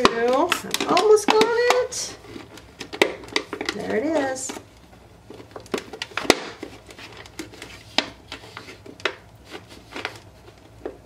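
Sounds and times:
plastic bottle crackling: 0.0s - 11.0s
cardboard forced through plastic slits: 5.3s - 11.0s.

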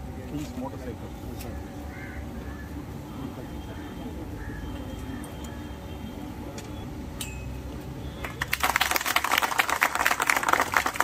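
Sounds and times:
crowd clapping: 8.2s - 11.0s.

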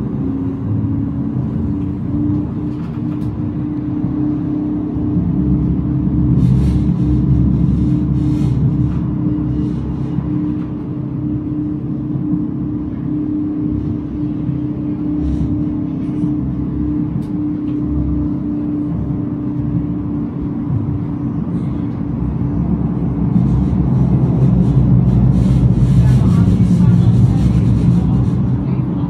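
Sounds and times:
steady hum: 0.0s - 29.0s
tram running rumble: 0.0s - 29.0s.

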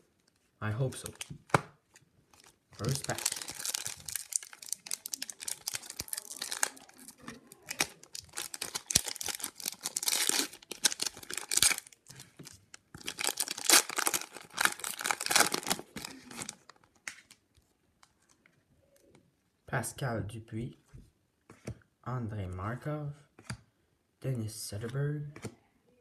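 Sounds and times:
card pack wrapper tearing and crinkling: 2.3s - 17.4s.

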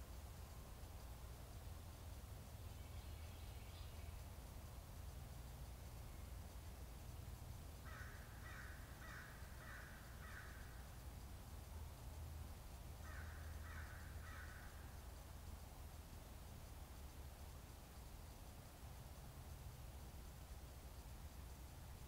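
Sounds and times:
distant crow cawing: 7.8s - 10.8s, 13.0s - 14.9s.

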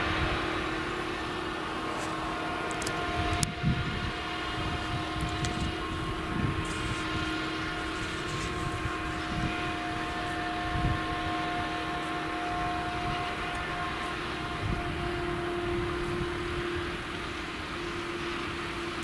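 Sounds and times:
harvester chopping crop: 0.0s - 10.7s
forage harvester engine under load: 0.0s - 19.0s.

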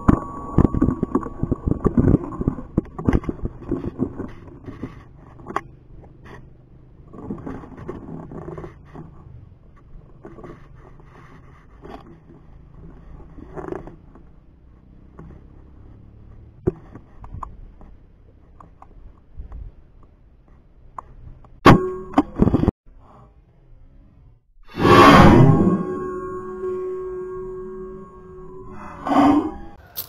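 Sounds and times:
sharp sounds with ringing tone: 0.0s - 2.6s, 24.6s - 30.0s.

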